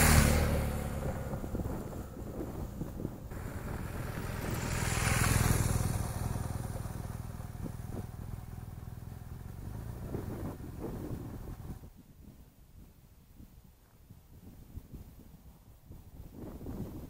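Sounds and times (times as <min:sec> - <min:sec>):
motorcycle riding past: 0:00.0 - 0:11.9.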